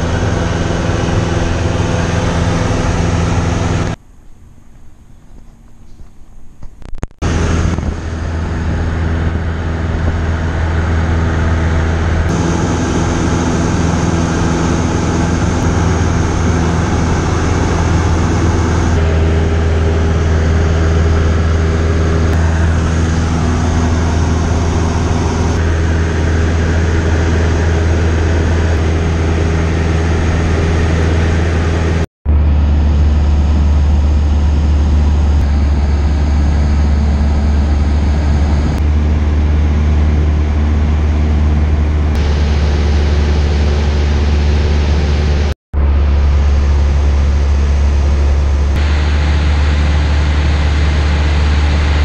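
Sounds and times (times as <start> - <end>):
aircraft engine droning in cabin: 7.2 - 52.0.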